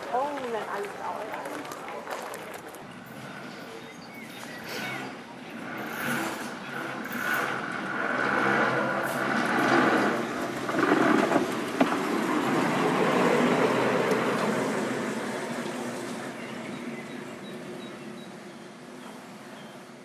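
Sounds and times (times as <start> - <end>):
tram wheels rolling over rails: 0.0 - 20.0.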